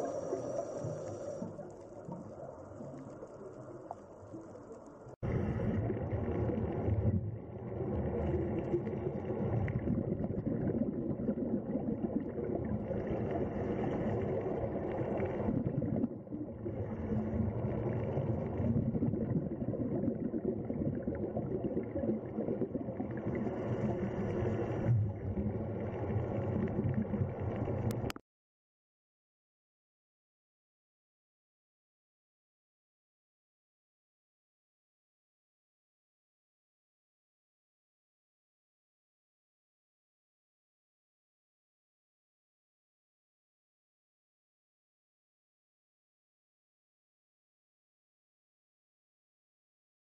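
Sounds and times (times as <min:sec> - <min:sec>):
underwater rushing gurgle: 0:00.0 - 0:28.2.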